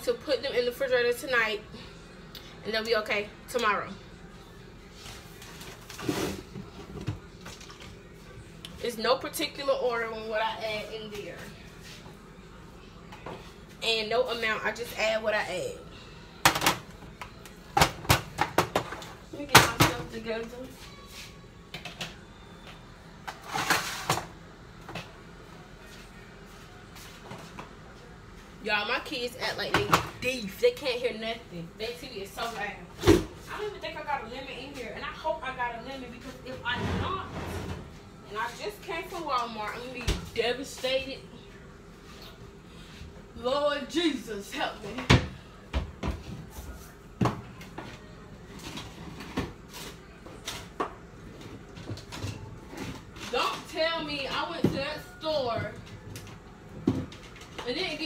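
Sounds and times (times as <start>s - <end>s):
kitchen items being moved: 4.9s - 8.3s, 23.2s - 25.2s, 36.2s - 40.8s, 44.8s - 58.0s
kitchen items clattering: 23.2s - 24.4s.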